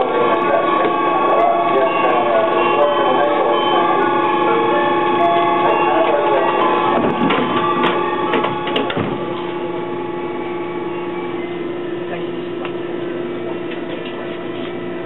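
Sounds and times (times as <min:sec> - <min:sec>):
train motor hum: 0:00.0 - 0:15.0
train clicks and knocks: 0:06.6 - 0:09.4.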